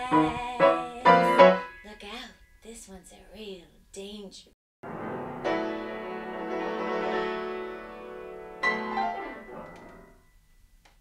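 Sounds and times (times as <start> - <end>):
grand piano chords: 0.0 - 1.9, 4.8 - 10.4.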